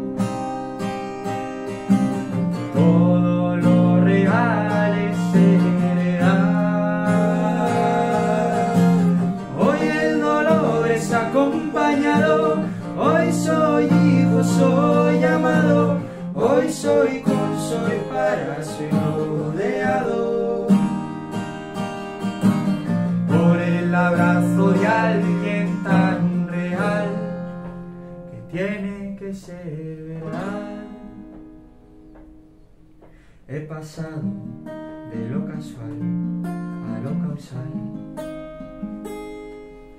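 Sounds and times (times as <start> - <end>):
acoustic guitar: 0.0 - 39.9
man singing: 2.6 - 21.0, 23.2 - 31.3, 33.5 - 36.1, 36.8 - 38.0.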